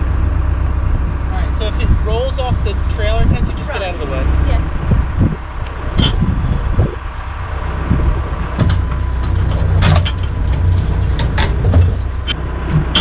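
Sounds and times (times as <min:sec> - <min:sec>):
diesel engine droning: 0:00.0 - 0:13.0
metal knocks and clanks: 0:08.6 - 0:13.0.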